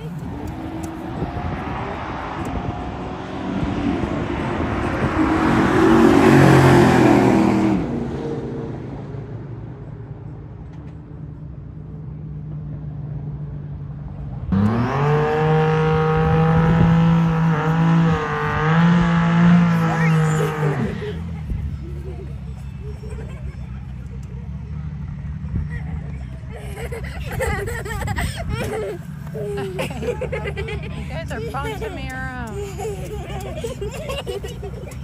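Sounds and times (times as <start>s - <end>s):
racing car engine full throttle: 0.0s - 26.5s
car engine revving during burnout: 0.2s - 8.1s, 14.5s - 21.2s.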